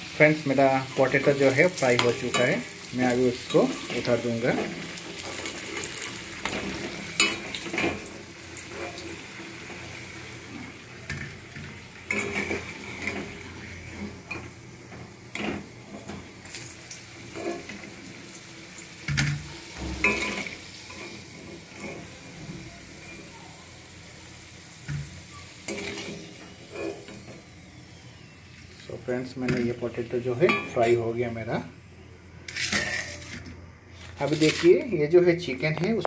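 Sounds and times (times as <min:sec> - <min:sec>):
potatoes sizzling in oil: 0:00.0 - 0:31.5
spatula scraping pan: 0:12.1 - 0:14.5, 0:25.6 - 0:27.3, 0:32.5 - 0:34.7.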